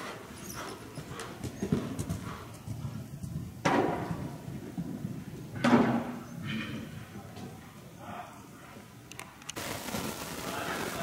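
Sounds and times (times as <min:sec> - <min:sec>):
horse hoofbeats on soft ground: 0:00.0 - 0:06.2.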